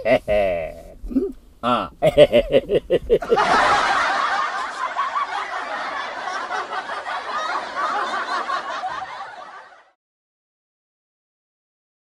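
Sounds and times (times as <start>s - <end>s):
many people laughing: 2.0s - 10.0s.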